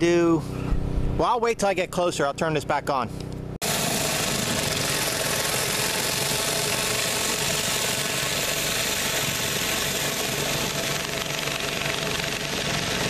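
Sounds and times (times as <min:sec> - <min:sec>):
pressure washer engine drone: 0:03.6 - 0:13.0.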